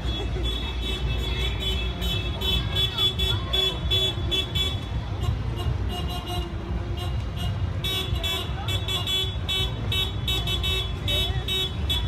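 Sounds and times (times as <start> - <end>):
car engines running: 0.0 - 12.0.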